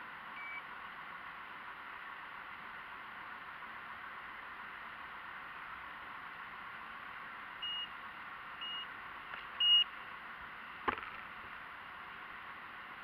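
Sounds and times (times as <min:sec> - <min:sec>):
short high beeps: 0:07.6 - 0:07.9.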